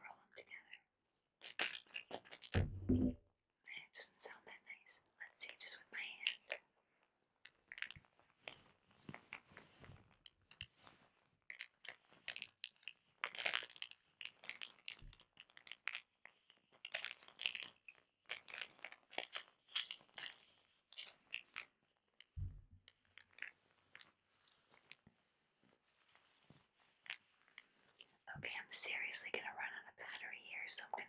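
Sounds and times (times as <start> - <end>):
soft low thump: 2.6 - 3.2, 22.4 - 22.8.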